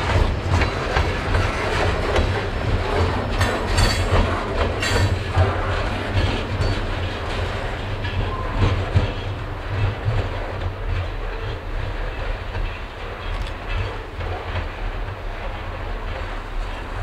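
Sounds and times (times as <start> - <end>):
train rumble: 0.0 - 17.0
train wheels clicking over rail joints: 0.0 - 17.0.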